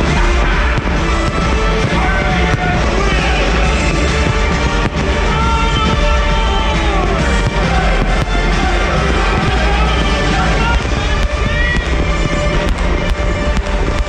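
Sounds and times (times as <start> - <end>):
firework cracks: 0.0 - 14.0
loud soundtrack music: 0.0 - 14.0.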